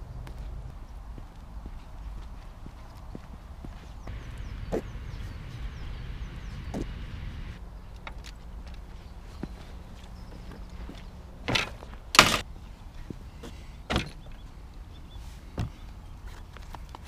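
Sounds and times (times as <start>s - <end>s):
metal gate clanking shut: 11.5s - 12.4s.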